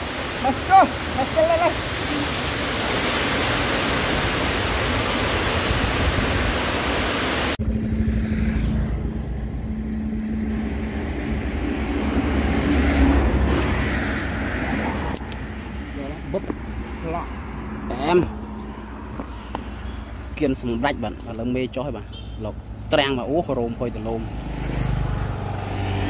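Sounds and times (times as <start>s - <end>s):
vehicle engine passing: 7.6s - 19.2s, 24.1s - 26.0s.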